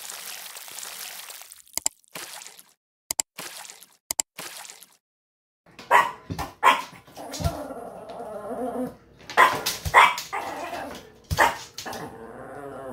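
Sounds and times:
small dog barking: 5.9 - 7.0, 9.4 - 10.6, 11.4 - 11.6.

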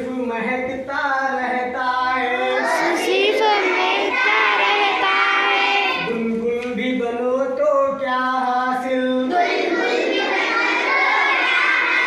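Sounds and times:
children singing in chorus: 2.0 - 6.2, 9.3 - 12.0.

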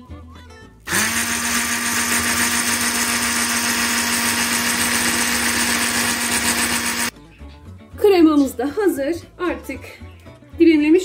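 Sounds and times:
stick blender whining: 0.9 - 7.1.

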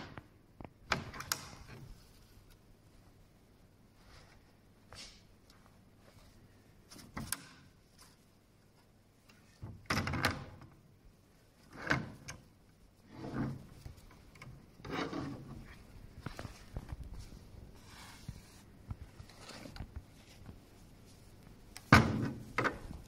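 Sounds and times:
garment rustling and rubbing: 12.8 - 23.0.

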